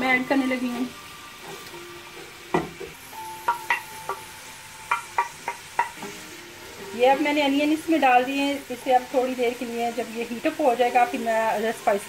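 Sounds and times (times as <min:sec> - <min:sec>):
wooden spoon tapping metal pot: 0:02.5 - 0:06.2.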